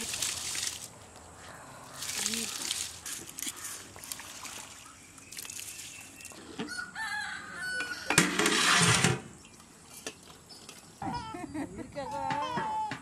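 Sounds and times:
rooster crowing: 6.7s - 8.2s.

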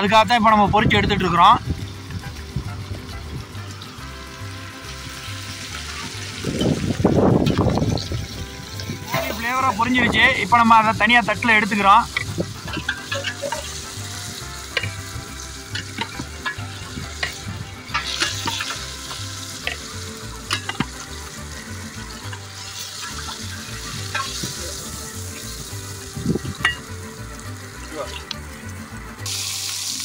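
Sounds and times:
chicken sizzling in hot oil: 1.0s - 30.0s
metal skimmer clinking on pot: 12.0s - 14.0s, 14.6s - 21.3s, 22.2s - 24.8s, 26.5s - 27.0s.

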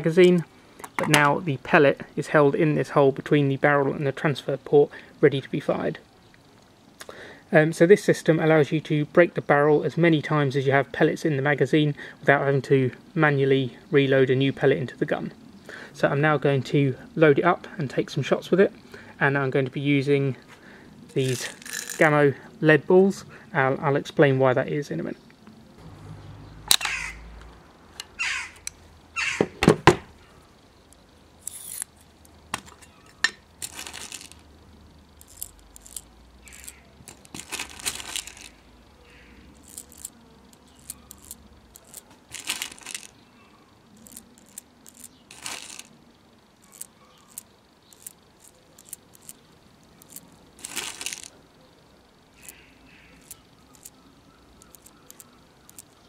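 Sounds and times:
pellets clinking and rattling: 21.1s - 22.2s, 33.6s - 34.5s, 35.2s - 38.6s, 39.6s - 43.2s, 44.0s - 45.9s, 50.0s - 51.4s
air rifle handling clicks: 26.7s - 27.0s.

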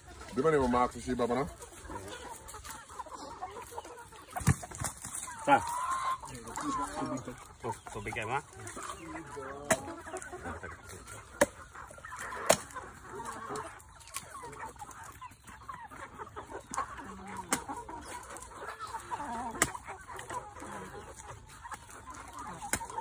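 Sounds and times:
chickens clucking: 0.0s - 23.0s
blade chopping coconuts: 9.7s - 9.9s, 11.4s - 11.6s, 12.4s - 12.8s.

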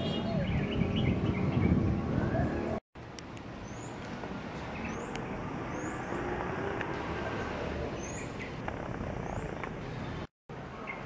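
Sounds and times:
bird chirping: 0.0s - 2.8s, 8.0s - 8.6s, 9.2s - 10.2s
road traffic hum: 0.0s - 11.0s.

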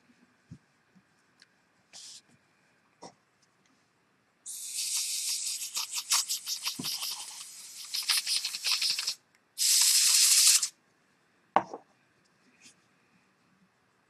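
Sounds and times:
aerosol spray hissing: 4.5s - 10.7s
spray can ball rattling: 4.5s - 10.7s.

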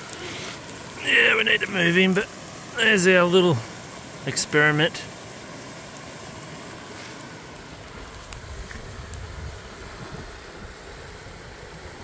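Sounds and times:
campfire crackling: 0.0s - 12.0s
wind buffeting microphone: 8.0s - 12.0s.

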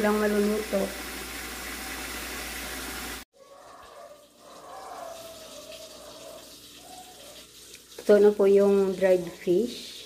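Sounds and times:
fish sizzling in oil: 0.0s - 3.2s.

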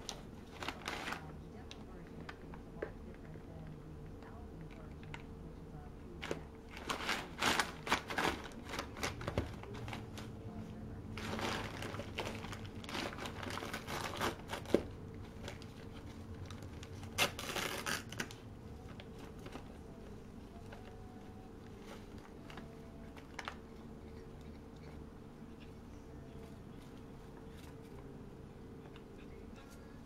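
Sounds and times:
packing paper crinkling: 0.0s - 1.3s, 6.2s - 10.4s, 11.2s - 20.0s.

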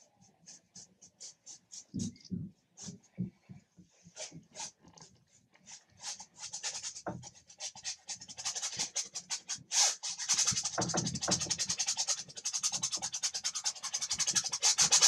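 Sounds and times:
paintbrush scrubbing on canvas: 4.0s - 15.0s.

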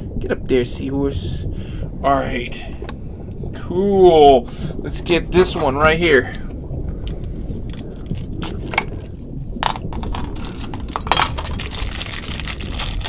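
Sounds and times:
plastic bag crinkling: 9.9s - 13.0s.

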